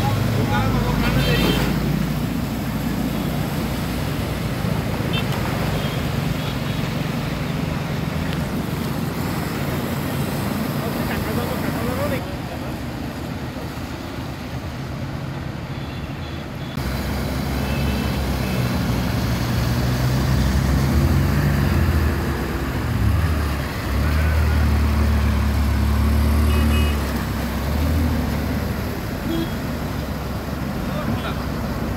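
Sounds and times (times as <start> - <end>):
vehicle engines droning: 16.6 - 31.9.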